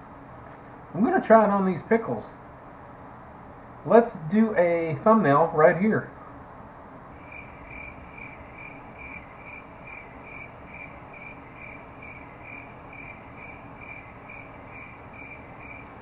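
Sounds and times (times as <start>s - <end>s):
faint low hum: 0.0s - 16.0s
cricket chirping: 7.2s - 16.0s.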